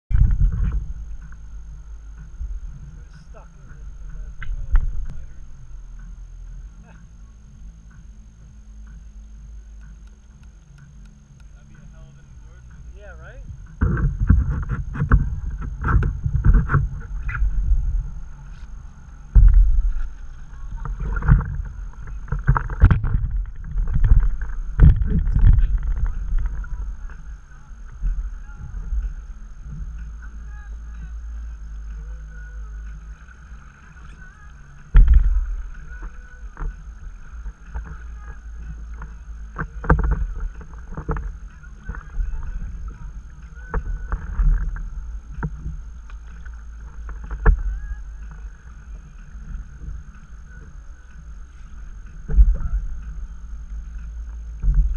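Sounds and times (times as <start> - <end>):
low rumble of water: 0.0 - 54.9
paddle splashing in water: 13.7 - 54.9.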